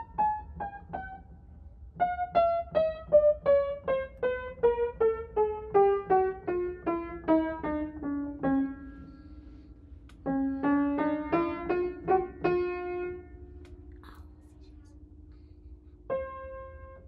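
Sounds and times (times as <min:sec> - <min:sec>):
piano melody: 0:10.3 - 0:13.4.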